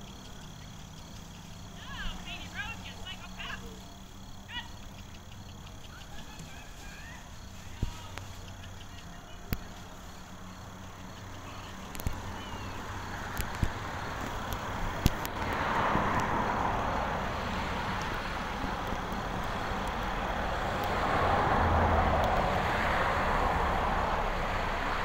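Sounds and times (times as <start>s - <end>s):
vehicles passing: 0.0s - 25.0s
sharp clicks: 13.3s - 16.4s, 17.9s - 21.0s.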